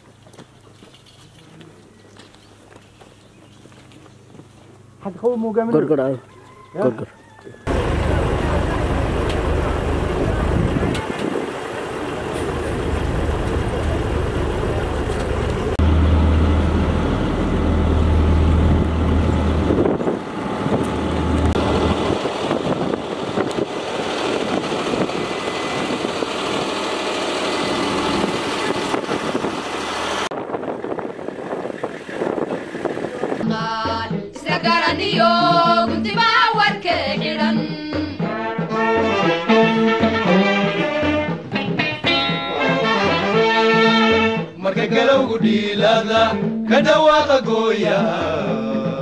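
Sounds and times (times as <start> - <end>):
truck engines humming: 7.4 - 34.4.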